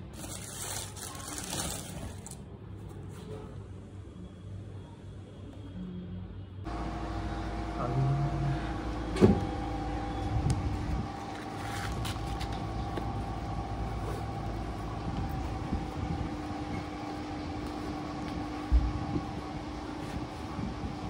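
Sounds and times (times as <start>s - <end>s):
low mechanical drone: 4.0s - 21.0s.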